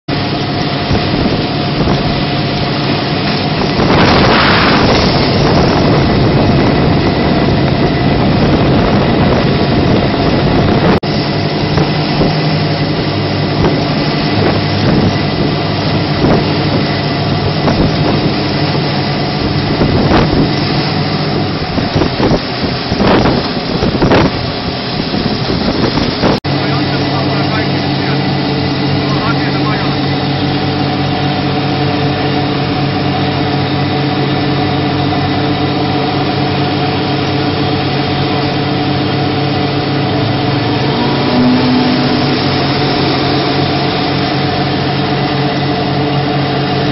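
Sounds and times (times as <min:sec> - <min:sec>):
boat engine running at speed: 0:00.1 - 0:46.9
water rushing past hull: 0:00.1 - 0:46.9
wind buffeting microphone: 0:00.1 - 0:46.9.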